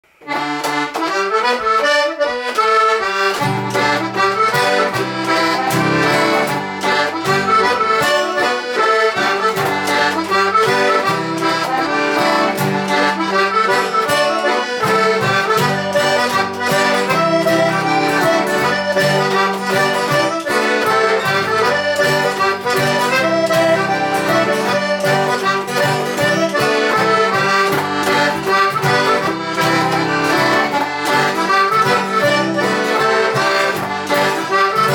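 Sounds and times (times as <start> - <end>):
accordion tune: 0.0 - 34.9
bass and chord accompaniment: 3.0 - 34.9.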